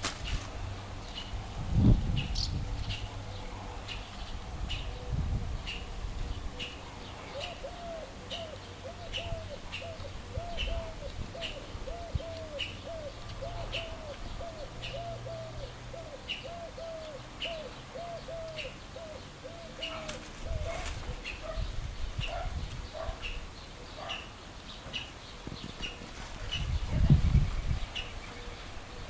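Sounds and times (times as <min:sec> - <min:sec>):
small birds chirping: 0:00.2 - 0:29.0
bird cooing: 0:04.7 - 0:24.3, 0:28.0 - 0:29.0.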